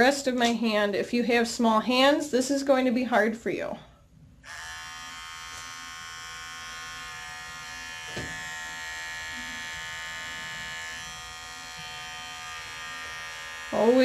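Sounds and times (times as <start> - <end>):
electric pet clipper running: 4.4 - 14.0.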